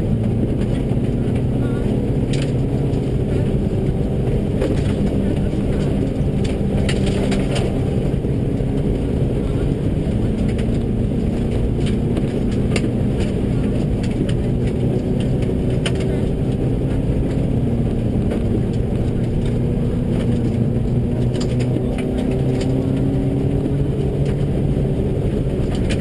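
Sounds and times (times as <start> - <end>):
gravel striking car: 0.0 - 26.0
rally car engine running hard: 0.0 - 26.0
tyre and road noise: 0.0 - 26.0.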